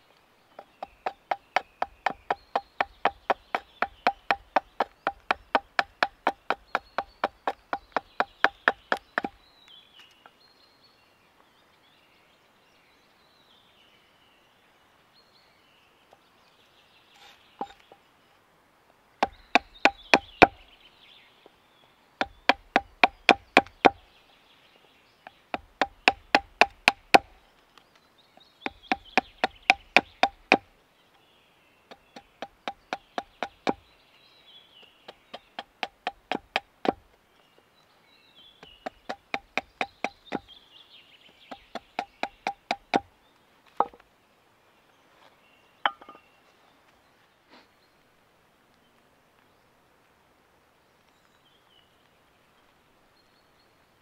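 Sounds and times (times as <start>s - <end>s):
hatchet knocking on wooden stick: 0.6s - 9.4s, 17.6s - 17.8s, 19.2s - 20.6s, 22.2s - 24.0s, 25.5s - 27.3s, 28.6s - 30.6s, 31.9s - 33.8s, 35.1s - 37.0s, 38.8s - 40.5s, 41.5s - 43.1s, 45.9s - 46.2s.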